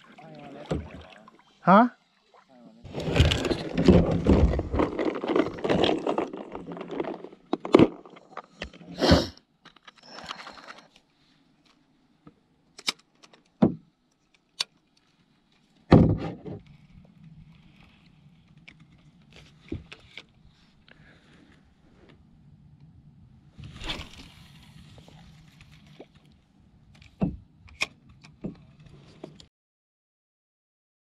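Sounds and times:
gear rustling in kayak: 2.9s - 9.0s, 16.6s - 22.4s, 23.5s - 29.5s.

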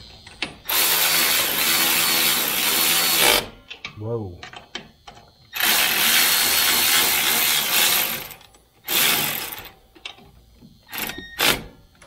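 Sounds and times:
cordless electric ratchet running: 0.7s - 3.5s, 5.5s - 9.8s.

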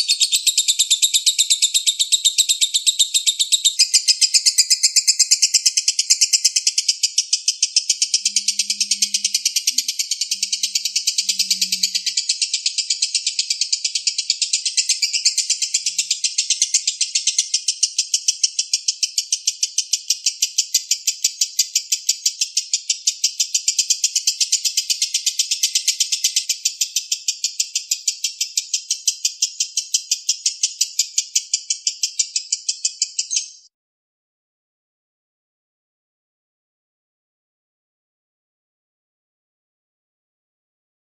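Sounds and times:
bird chattering high notes: 7.9s - 14.1s.

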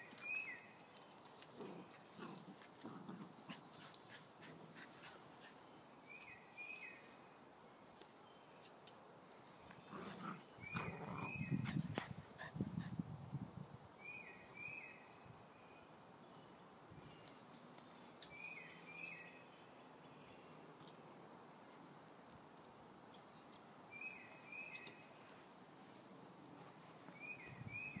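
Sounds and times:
puppies scuffling on grass: 0.0s - 10.4s, 24.1s - 28.0s.

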